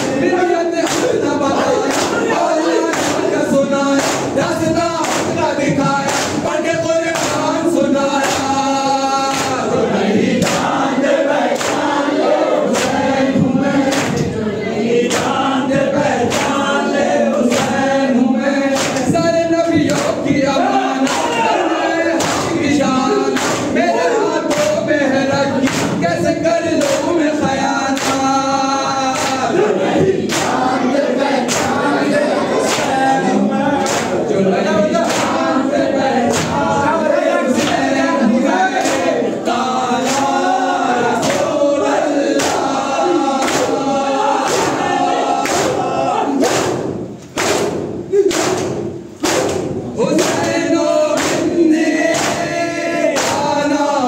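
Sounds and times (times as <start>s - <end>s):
men chanting in chorus: 0.0s - 54.0s
hands beating chests: 0.8s - 7.6s, 11.5s - 14.3s, 18.7s - 23.8s, 25.6s - 30.8s, 33.8s - 34.2s, 36.2s - 36.8s, 42.3s - 52.6s.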